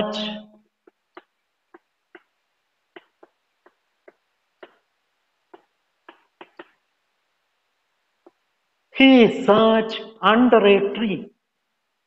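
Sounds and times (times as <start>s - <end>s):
chalk tapping on chalkboard: 0.8s - 4.9s, 5.5s - 6.8s.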